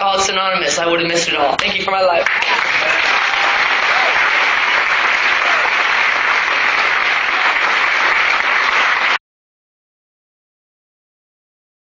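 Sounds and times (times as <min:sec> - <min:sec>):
audience applauding: 0:02.2 - 0:09.2.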